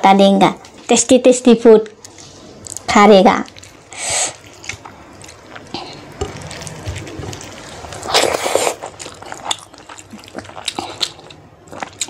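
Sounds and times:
loud slurp: 8.0 - 8.9.

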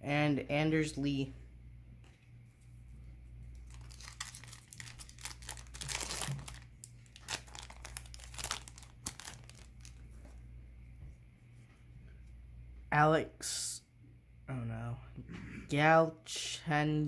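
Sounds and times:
wrapper tearing and crinkling: 3.6 - 10.0.

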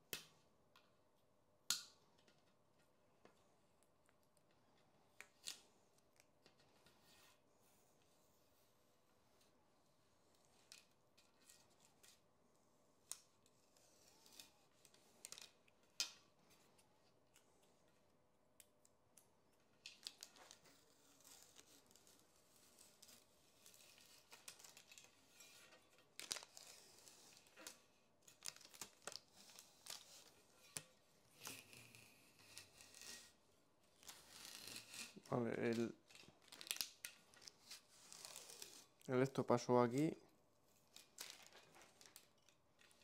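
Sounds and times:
tape ripping and crinkling: 19.8 - 39.1, 40.8 - 43.0.

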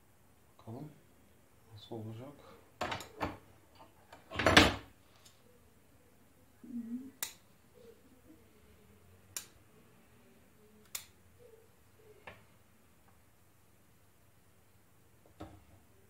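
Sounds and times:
scissors snipping twigs: 10.8 - 11.2.

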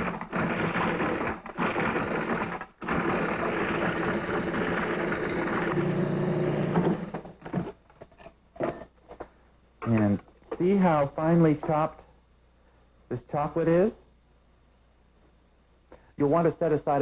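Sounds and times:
food processor chopping chocolate: 0.0 - 7.8.

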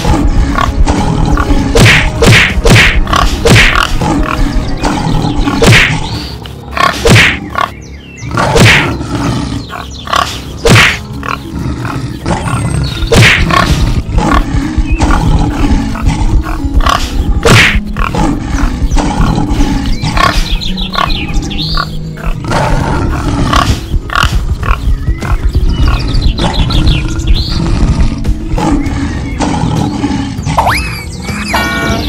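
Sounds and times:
cartoon animal roars and grunts: 0.0 - 6.1, 8.2 - 20.5, 22.2 - 24.9, 25.9 - 31.0
dramatic background music: 0.0 - 32.0
sharp hit sounds: 0.8 - 4.0.

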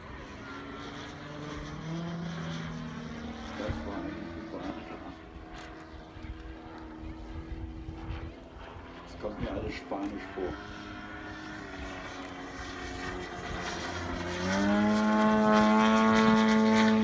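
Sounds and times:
model plane engine droning: 0.0 - 17.0.

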